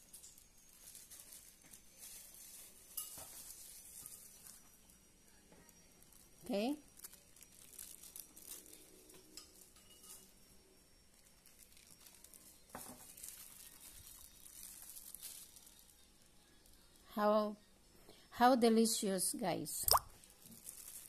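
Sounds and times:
seeds sprinkling crackle: 0.0s - 4.8s, 5.6s - 10.3s, 11.1s - 17.0s, 19.9s - 21.0s.

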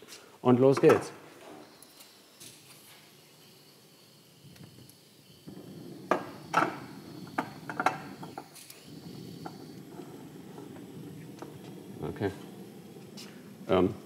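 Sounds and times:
gas burner flame rushing: 1.4s - 14.0s
burner ignition clicks: 4.5s - 13.8s.

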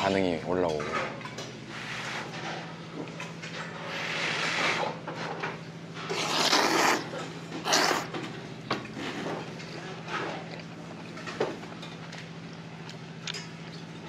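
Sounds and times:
man slurping noodles: 6.1s - 8.1s.

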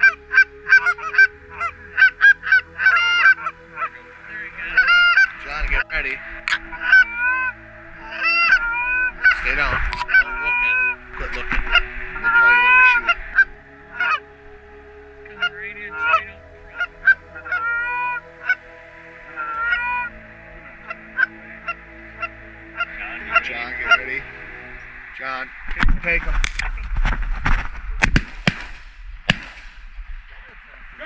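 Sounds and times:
goose honks and clucks: 0.0s - 14.3s, 15.2s - 24.5s.

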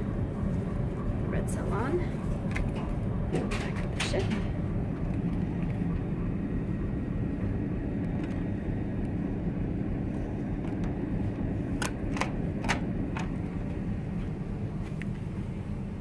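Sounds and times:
ship machinery hum: 0.0s - 16.0s
door lock clicking: 11.8s - 13.3s.

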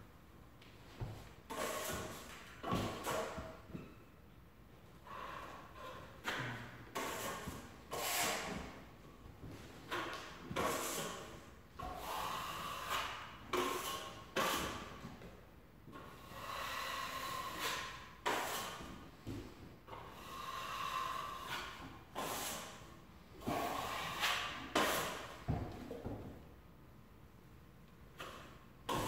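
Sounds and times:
drywall blade scraping: 1.1s - 3.8s, 5.0s - 8.8s, 9.8s - 15.1s, 15.9s - 19.0s, 19.9s - 26.0s, 28.1s - 29.0s.

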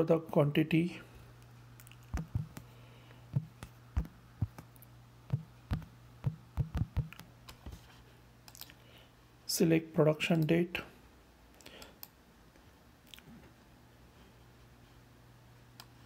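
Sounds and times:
low steady hum: 0.0s - 16.0s
keyboard typing clicks: 1.8s - 2.6s, 5.3s - 7.6s.

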